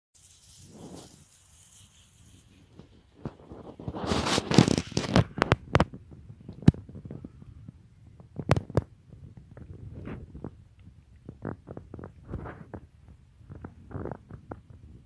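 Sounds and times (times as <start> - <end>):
dog rustling through dry grass: 0.2 - 5.2.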